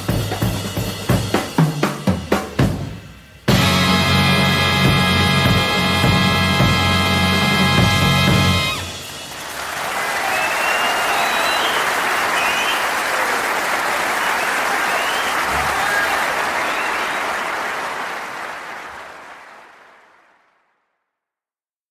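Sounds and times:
audience cheering: 0:08.3 - 0:20.7
audience applauding: 0:08.8 - 0:20.9.

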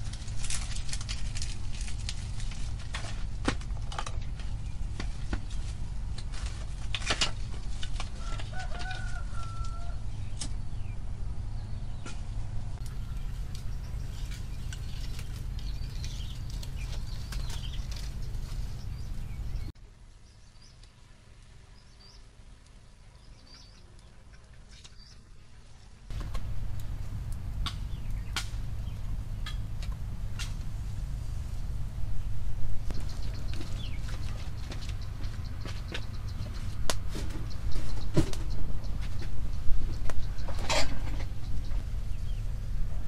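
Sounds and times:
twigs rustling and snapping: 0:00.0 - 0:10.6, 0:12.8 - 0:19.7, 0:26.1 - 0:30.8, 0:32.8 - 0:41.3
low rumble: 0:09.9 - 0:19.8, 0:26.1 - 0:43.0.

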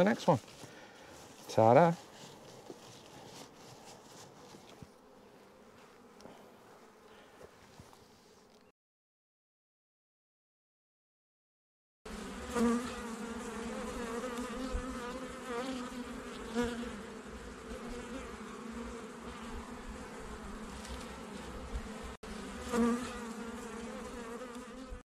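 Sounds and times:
bees buzzing: 0:12.1 - 0:25.0.

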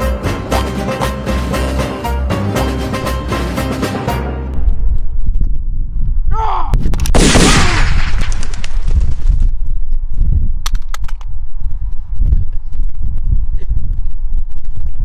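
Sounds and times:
wind rumbling on microphone: 0:04.5 - 0:15.0.

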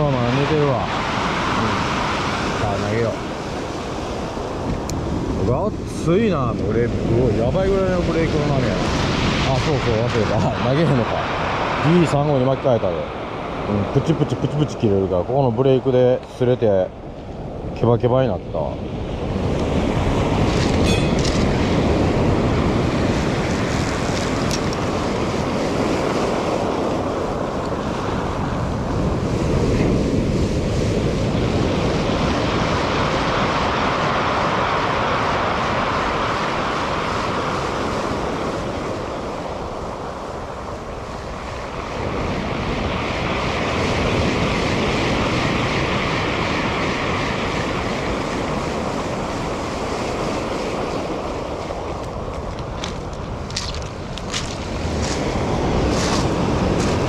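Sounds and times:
wind buffeting microphone: 0:00.0 - 0:12.6, 0:13.2 - 0:57.0
surf breaking on pebbles: 0:19.8 - 0:27.3, 0:47.0 - 0:57.0.

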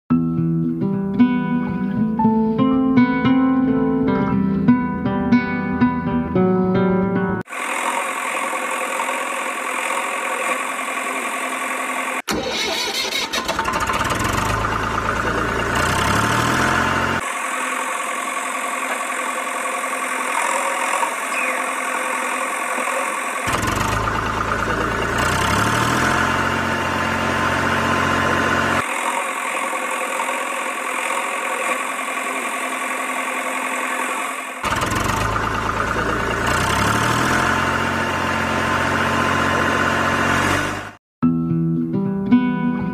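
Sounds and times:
vehicle engine revving: 0:07.5 - 0:41.0.

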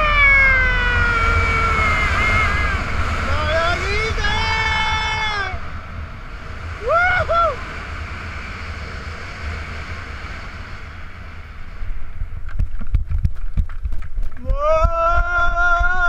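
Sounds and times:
wind rushing over microphone: 0:00.0 - 0:16.0
man yelling cheerfully: 0:00.1 - 0:05.7, 0:14.4 - 0:16.0.

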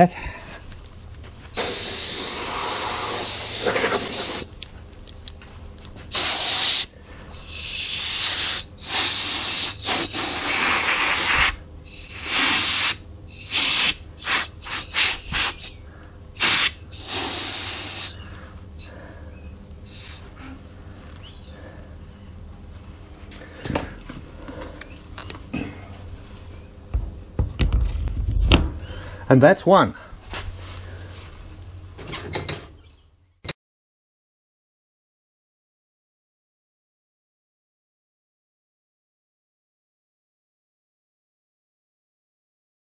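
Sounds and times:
compressed air blow gun hissing: 0:01.5 - 0:04.5, 0:06.1 - 0:15.8, 0:16.4 - 0:19.0, 0:19.8 - 0:20.4.

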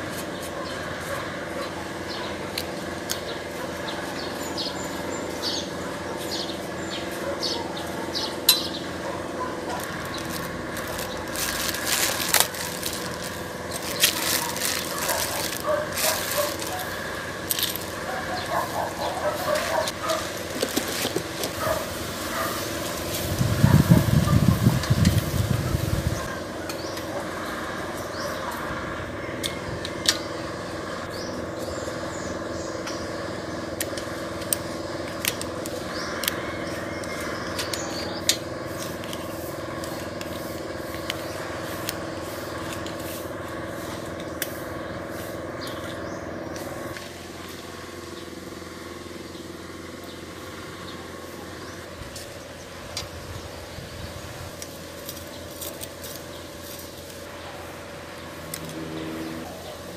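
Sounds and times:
low drone: 0:55.8 - 0:59.9.

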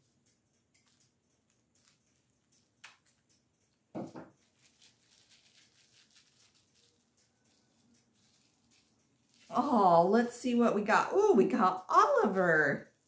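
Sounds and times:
packaging rustling and crinkling: 0:00.8 - 0:02.2, 0:04.0 - 0:10.0.

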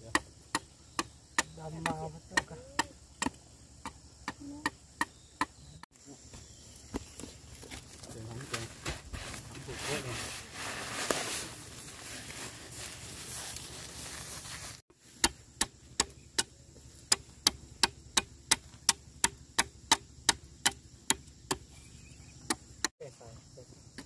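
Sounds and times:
machete chopping bamboo: 0:00.0 - 0:05.6, 0:15.1 - 0:21.7
plastic sack rustling: 0:07.3 - 0:14.8.

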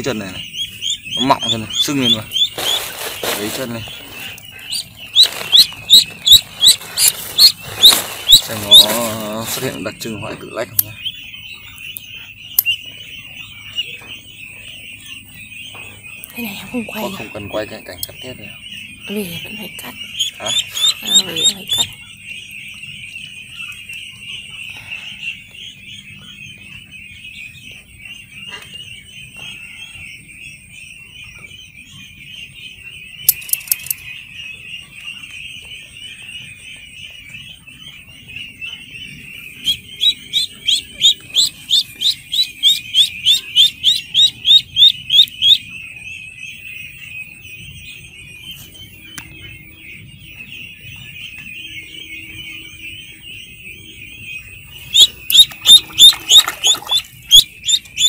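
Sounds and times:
ducklings peeping: 0:00.0 - 0:58.0
loud rising duckling peeps: 0:00.0 - 0:58.0
sharp clicks: 0:33.3 - 0:34.0.

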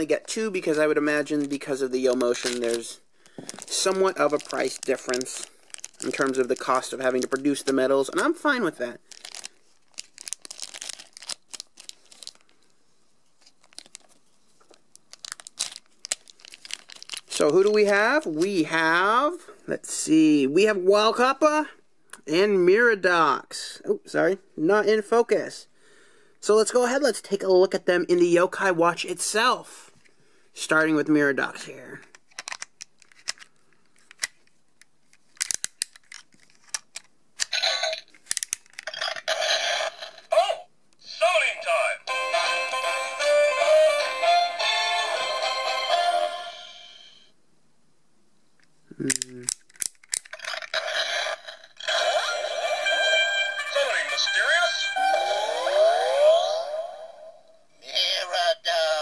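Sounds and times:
plastic bag crinkling: 0:00.2 - 0:12.7, 0:13.4 - 0:17.8
plastic toy clicks and rattles: 0:32.2 - 0:34.4, 0:35.4 - 0:39.0, 0:49.1 - 0:50.6.

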